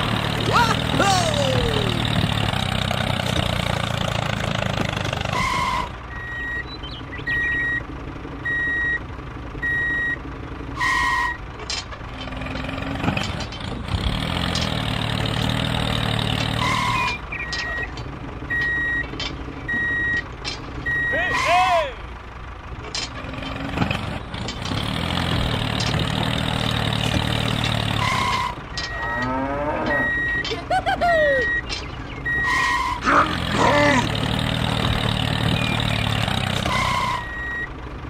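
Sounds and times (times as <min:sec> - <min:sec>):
heavy vehicle engine rumbling: 0:00.0 - 0:38.0
reversing alarm beeping: 0:05.4 - 0:07.8, 0:08.4 - 0:09.0, 0:09.6 - 0:10.2, 0:16.6 - 0:20.2, 0:20.8 - 0:21.6, 0:28.0 - 0:30.5, 0:31.3 - 0:33.0, 0:36.6 - 0:37.7.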